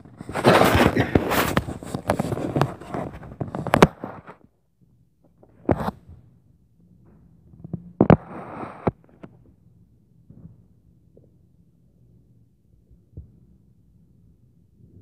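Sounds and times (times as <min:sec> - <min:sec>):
scraping rustle: 0:00.0 - 0:04.4.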